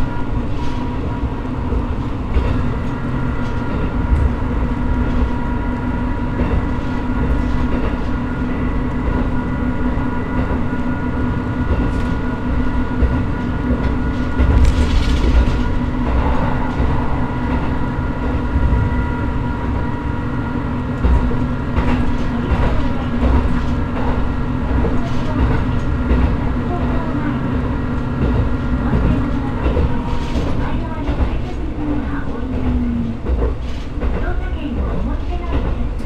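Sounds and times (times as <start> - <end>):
diesel railcar engine drone: 0.0 - 36.0
rush of noise: 13.9 - 21.3.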